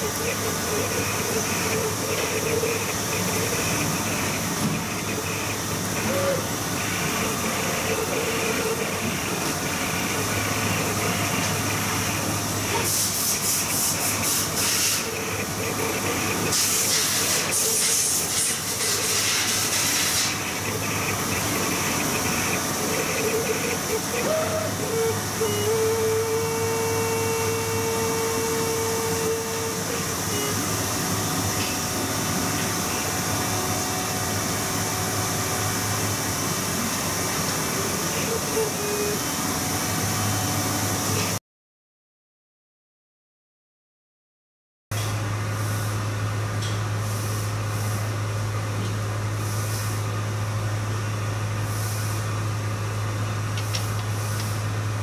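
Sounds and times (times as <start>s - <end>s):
cutting plotter machine hiss: 0.0s - 41.4s, 45.2s - 55.0s
steady machine tone: 0.0s - 41.4s.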